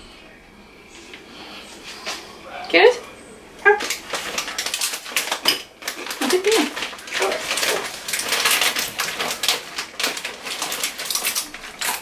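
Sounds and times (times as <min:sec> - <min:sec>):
plastic chip bag crinkling: 0:03.6 - 0:12.0.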